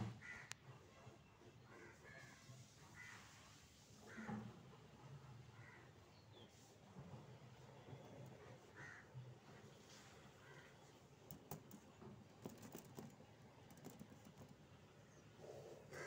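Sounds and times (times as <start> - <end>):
light clicks and taps in cage: 11.1 - 14.8.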